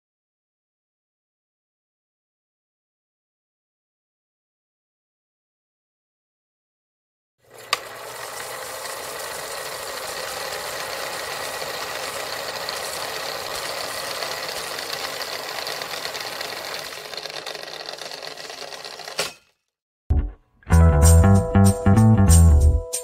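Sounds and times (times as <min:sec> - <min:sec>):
film projector clattering: 0:07.4 - 0:19.5.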